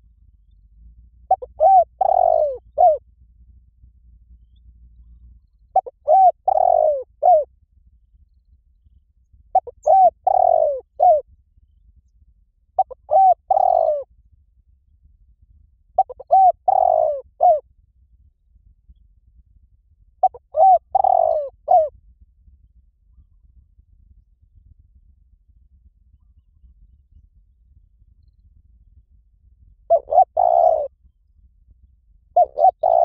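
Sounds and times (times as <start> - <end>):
dove cooing: 1.3 - 3.0, 5.7 - 7.5, 9.5 - 11.2, 12.8 - 14.1, 16.0 - 17.6, 20.2 - 21.9, 29.9 - 30.9, 32.4 - 33.0.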